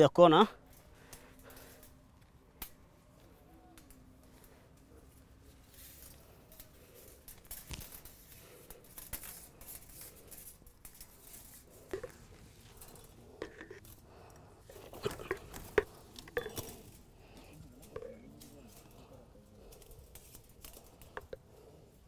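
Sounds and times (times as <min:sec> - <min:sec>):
wire scraping against wire mesh: 0:05.6 - 0:22.0.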